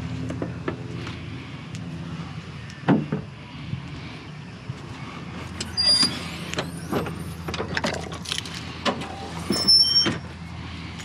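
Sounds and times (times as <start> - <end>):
steady low hum: 0.0 - 7.6.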